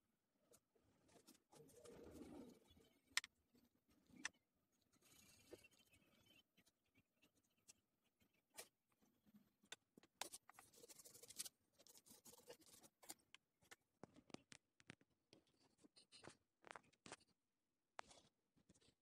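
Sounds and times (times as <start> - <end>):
pencil scratching on paper: 10.2 - 13.2.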